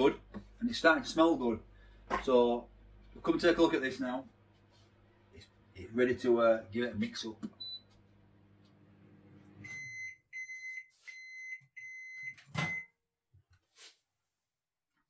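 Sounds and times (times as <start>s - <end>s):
microwave oven humming: 5.0s - 10.2s
microwave timer beeps: 7.6s - 7.9s, 9.6s - 13.0s.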